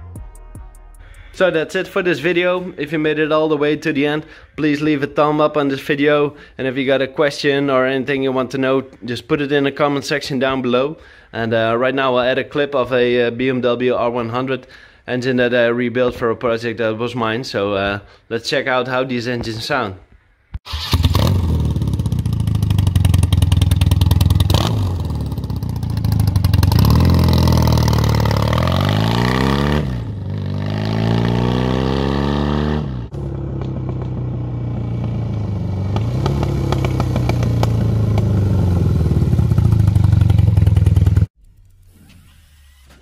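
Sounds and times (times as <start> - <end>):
motorcycle engine revving: 20.7 - 41.3.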